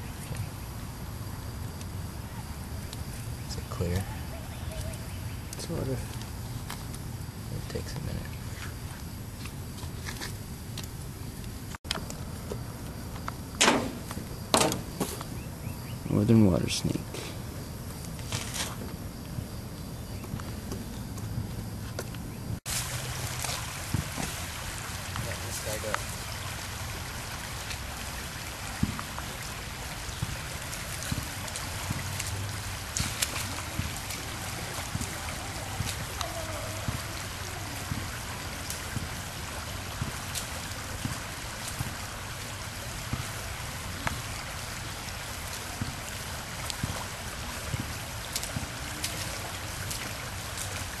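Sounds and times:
rocky creek rushing and trickling: 22.7s - 51.0s
wading splashes over stones: 22.7s - 51.0s.

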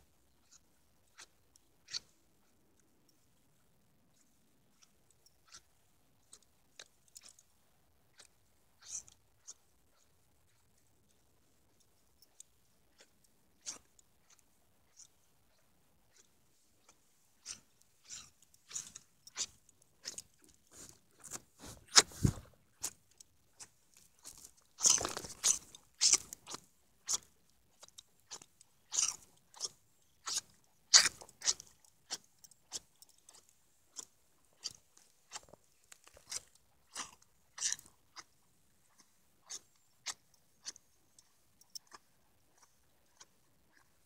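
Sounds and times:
pony nibbling with smacking clicks: 11.8s - 22.1s, 22.8s - 44.0s.

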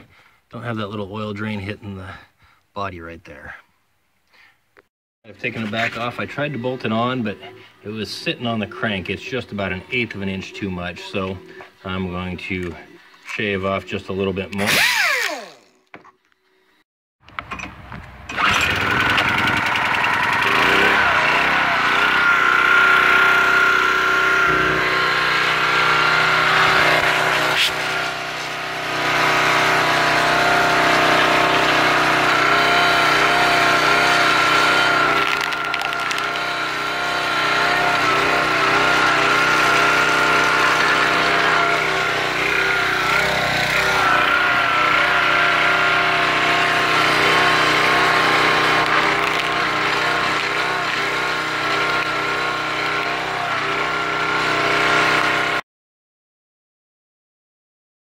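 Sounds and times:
small engine running: 14.5s - 15.9s, 18.2s - 55.6s
hydraulic pump whine: 14.5s - 16.6s, 17.3s - 55.6s.

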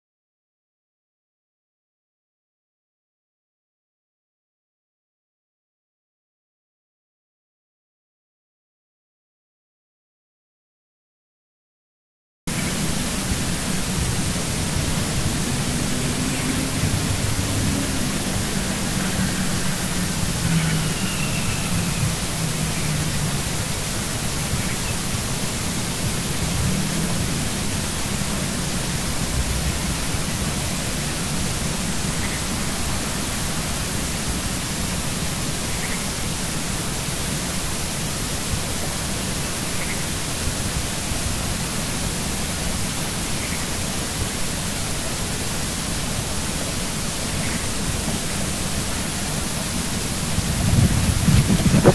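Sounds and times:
static hiss: 12.5s - 51.9s.

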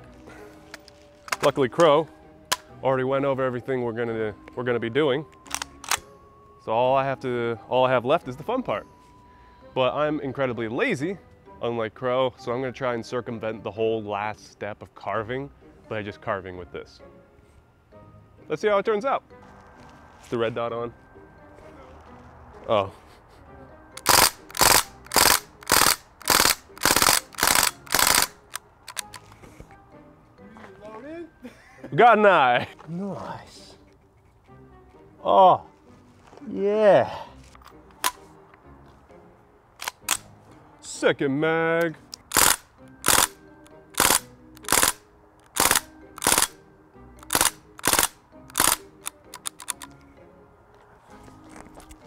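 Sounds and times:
bb rifle firing in bursts: 24.0s - 28.3s.

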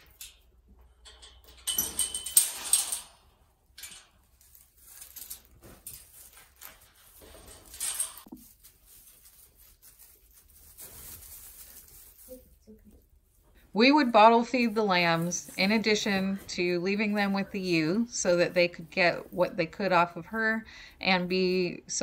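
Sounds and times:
sheep rustling in straw: 4.3s - 7.6s, 8.2s - 12.6s, 13.8s - 20.2s.

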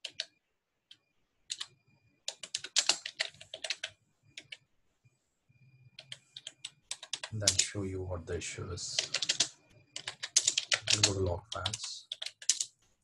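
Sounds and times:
typing on computer keyboard: 0.0s - 0.3s, 0.9s - 4.6s, 6.0s - 7.8s, 8.9s - 12.8s.

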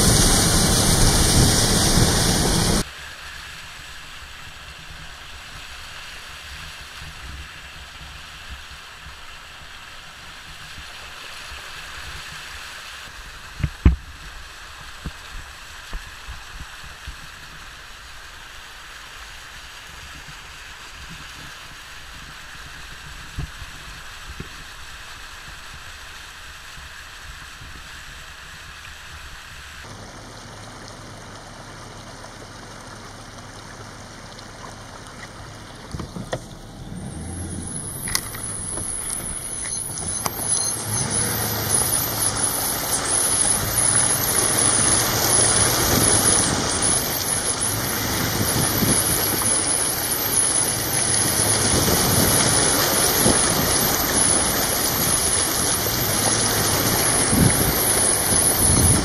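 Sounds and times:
truck splashing through water: 0.0s - 13.6s, 29.8s - 59.0s.

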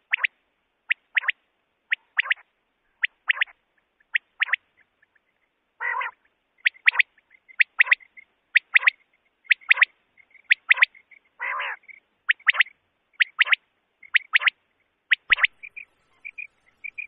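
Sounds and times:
quail song: 0.0s - 17.0s
lower rough bird call: 5.8s - 6.3s.

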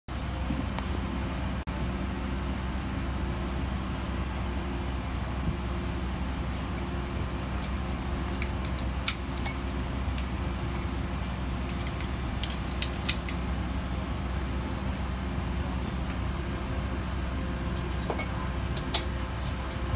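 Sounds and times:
airliner cabin hum: 0.1s - 19.9s.

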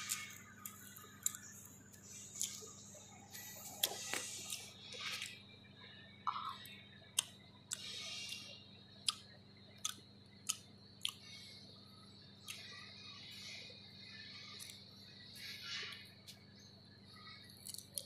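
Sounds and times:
person chewing: 0.0s - 5.4s, 7.2s - 11.4s, 17.6s - 18.0s.

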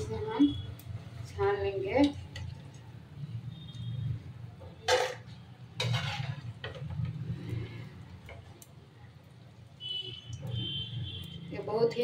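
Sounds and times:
metal spoon scraping frying pan: 4.8s - 8.5s.

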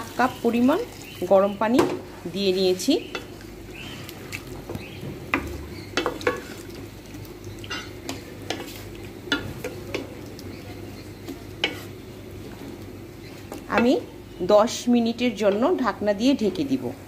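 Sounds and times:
liver sizzling in a frying pan: 0.0s - 15.8s
utensil scraping a pan: 11.6s - 12.0s.

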